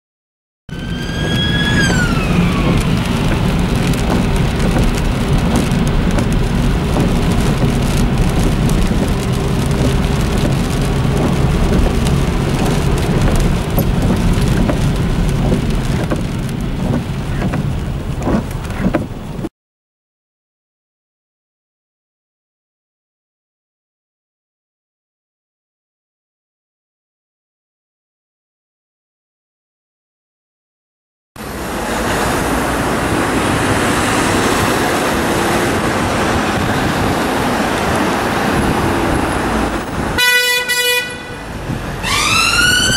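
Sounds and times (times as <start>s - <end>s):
siren falling in pitch: 0.7s - 3.2s, 42.0s - 42.9s
heavy rain: 0.7s - 19.5s, 31.4s - 42.9s
wet-road traffic with tyre spray: 0.7s - 19.5s, 31.4s - 42.9s.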